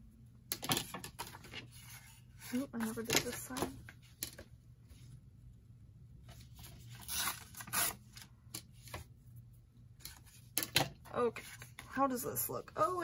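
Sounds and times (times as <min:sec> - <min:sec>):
paper ripping: 0:06.9 - 0:08.1.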